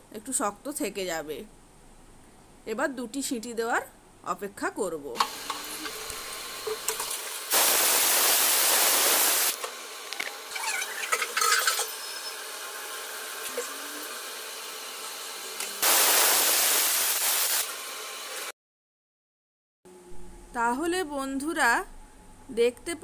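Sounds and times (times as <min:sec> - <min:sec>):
low steady steam hiss: 0:07.3 - 0:09.6, 0:15.8 - 0:17.6
pressure cooker whistling: 0:10.5 - 0:13.3.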